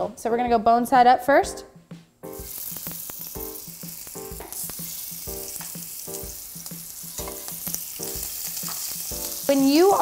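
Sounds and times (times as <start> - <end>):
background music with beat: 1.4 - 10.0
meat sizzling in a pan: 2.3 - 10.0.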